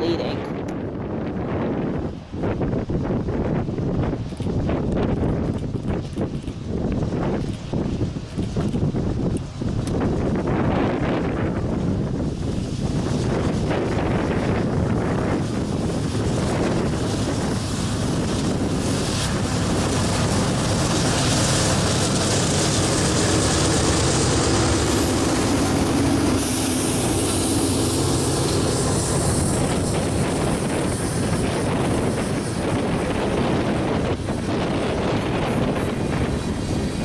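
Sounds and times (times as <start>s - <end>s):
diesel locomotive engines: 0.0s - 37.0s
wind noise on microphone: 0.0s - 37.0s
train wheels rolling on rails: 4.0s - 10.4s, 12.4s - 37.0s.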